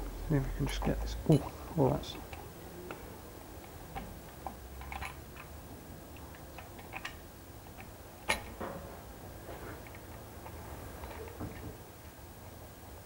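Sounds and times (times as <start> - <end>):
small metal clicks and ticks: 6.1 - 8.5.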